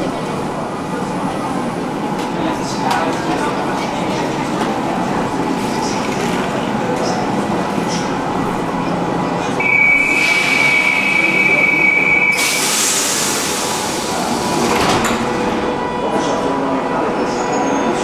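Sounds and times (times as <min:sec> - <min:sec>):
train running in tunnel: 0:00.0 - 0:18.0
loud high hiss: 0:12.4 - 0:14.4.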